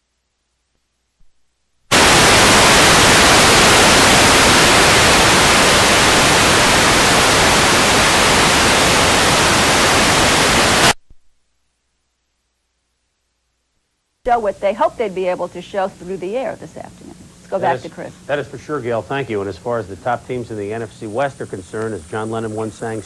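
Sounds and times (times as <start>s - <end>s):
loud static hiss: 0.0s - 23.0s.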